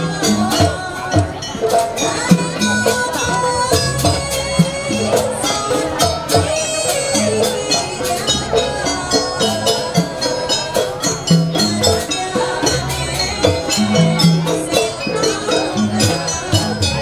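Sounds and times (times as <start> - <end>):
drums: 0.0 - 17.0
rapid jingling percussion: 0.0 - 17.0.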